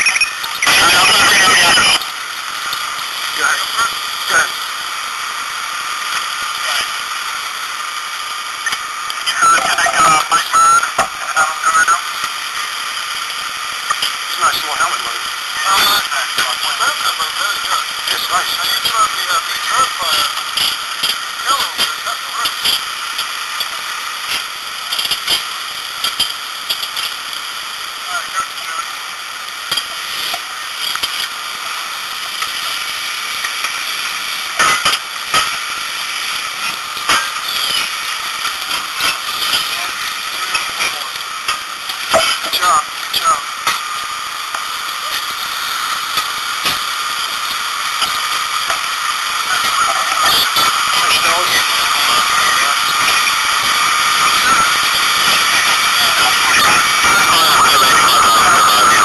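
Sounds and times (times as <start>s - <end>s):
garbled two-way radio voices: 0.0s - 4.7s, 6.4s - 7.1s, 8.7s - 13.2s, 13.8s - 22.8s, 28.0s - 29.1s, 38.6s - 43.9s, 44.9s - 45.4s, 47.9s - 59.0s
steady hiss: 0.4s - 59.0s.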